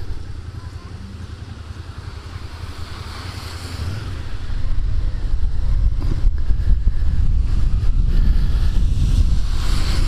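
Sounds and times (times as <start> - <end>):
tyres hissing on wet road: 1.2 - 4.8, 7.4 - 10.0
wind rumbling on microphone: 1.8 - 10.0.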